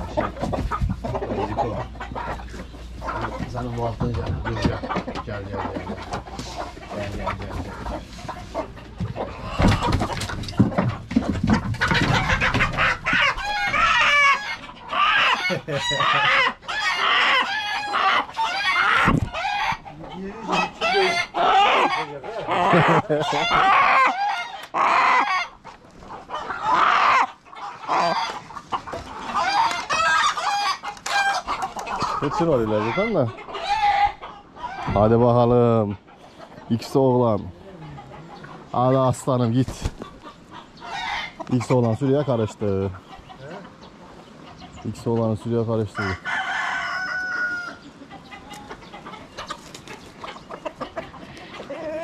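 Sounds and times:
chickens clucking and squawking: 0.0s - 52.0s.

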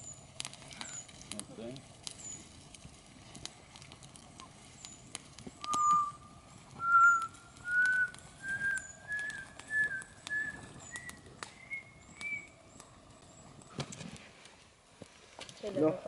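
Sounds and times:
campfire crackling: 0.0s - 16.0s
person whistling held notes: 5.6s - 6.2s, 6.8s - 12.5s.

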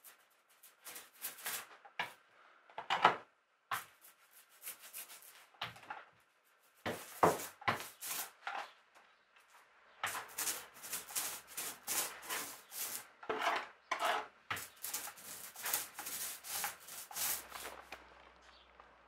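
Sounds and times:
hand tool scraping wood: 6.8s - 8.6s, 10.0s - 18.0s.

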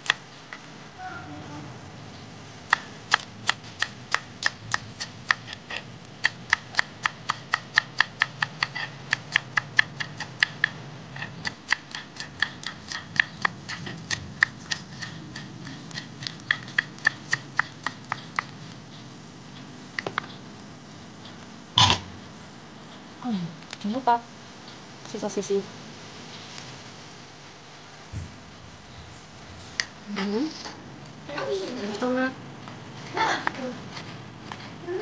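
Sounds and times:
knife chopping on wooden board: 2.7s - 18.5s.

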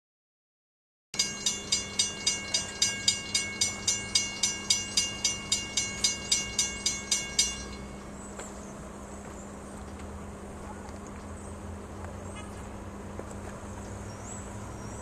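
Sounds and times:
crossing signal bell ringing: 1.2s - 8.2s
low hum: 1.2s - 15.0s.

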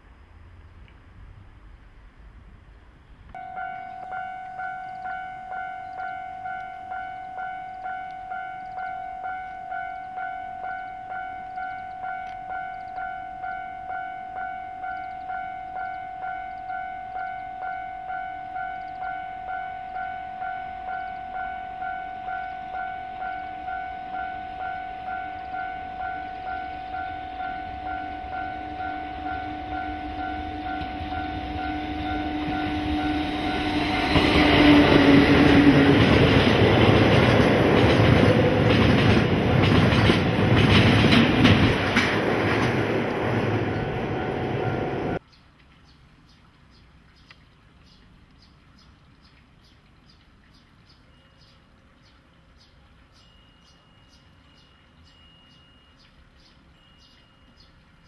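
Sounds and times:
freight train rumble: 3.3s - 45.2s
level crossing bell ringing: 3.4s - 34.2s.

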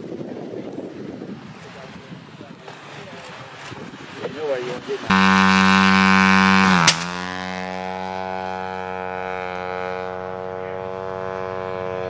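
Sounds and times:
propeller drone engine running: 5.1s - 12.0s
sharp crack of catapult launch: 6.8s - 7.2s.

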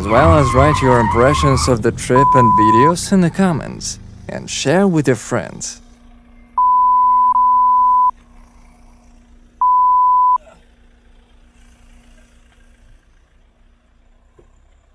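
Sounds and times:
electronic beeps: 2.1s - 2.9s, 6.6s - 8.1s, 9.6s - 10.4s.

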